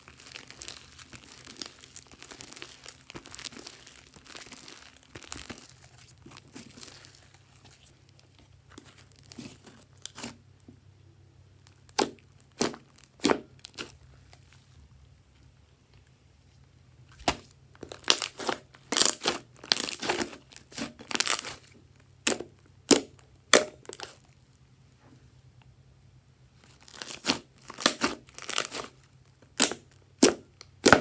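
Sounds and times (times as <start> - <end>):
slime snapping and popping: 11.8 - 13.9, 22.2 - 24.2, 26.9 - 28.9, 29.6 - 31.0.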